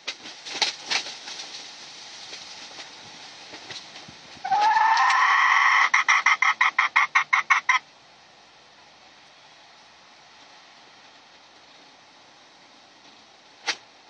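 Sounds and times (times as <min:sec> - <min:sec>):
hen call breaking into pulses: 0:04.4 - 0:07.8.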